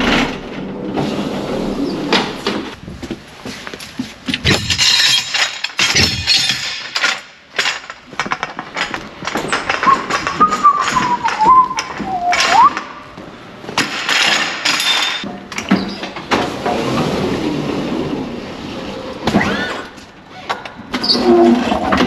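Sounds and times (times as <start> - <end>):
footsteps on trailer floor: 2.7 - 4.9.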